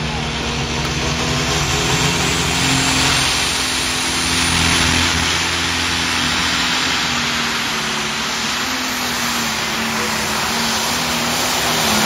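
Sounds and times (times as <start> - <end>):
tractor diesel engine roaring: 0.0 - 12.0.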